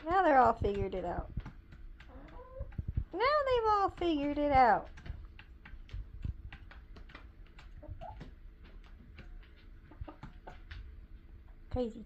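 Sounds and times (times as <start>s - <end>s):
chickens pecking at a bowl: 0.0s - 11.9s
chicken clucking: 2.0s - 2.8s, 7.5s - 10.8s.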